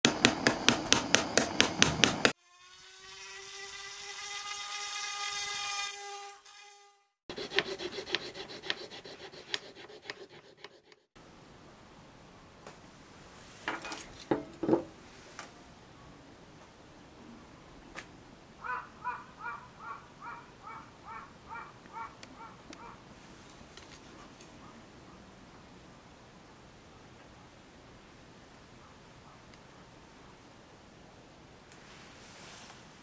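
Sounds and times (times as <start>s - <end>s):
hammer tapping metal cup: 0.0s - 2.3s
file rasping on wood: 0.0s - 2.4s, 7.3s - 11.1s.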